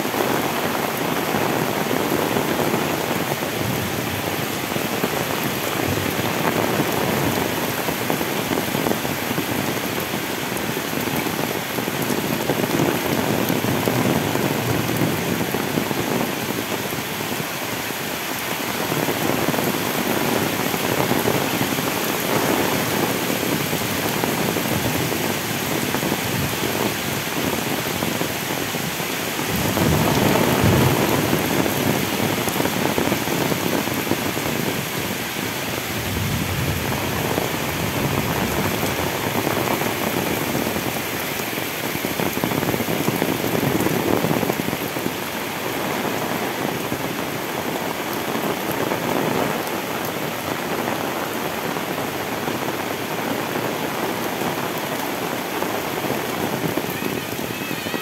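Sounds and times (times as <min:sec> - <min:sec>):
heavy rain pouring: 0:00.0 - 0:58.0.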